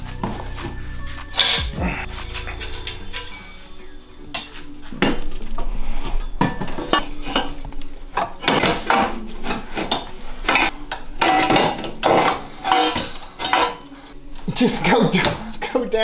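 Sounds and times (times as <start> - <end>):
metal exhaust pipe clanking and scraping: 0.0 - 14.2.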